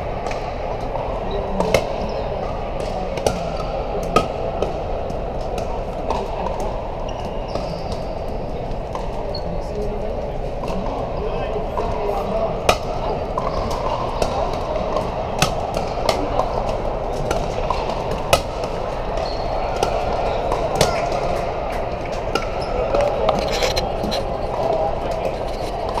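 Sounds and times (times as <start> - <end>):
crowd chatter: 0.0 - 26.0
paddles striking balls: 12.5 - 26.0.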